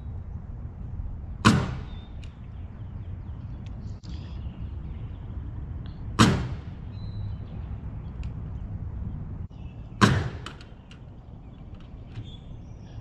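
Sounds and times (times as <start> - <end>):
wind rumble on microphone: 0.0 - 13.0
nail gun shots: 1.4 - 2.0, 6.2 - 6.8, 10.0 - 10.8.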